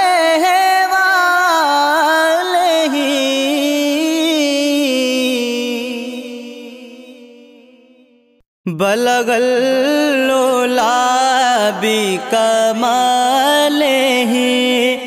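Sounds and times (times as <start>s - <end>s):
person singing: 8.7s - 15.0s.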